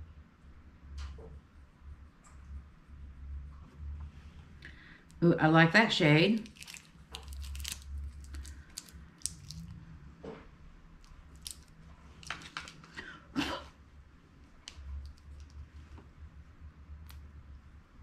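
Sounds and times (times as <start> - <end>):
low steady hum: 0.0 - 18.0
pencils clicking and rustling: 6.3 - 9.7, 11.1 - 13.0, 14.6 - 15.6.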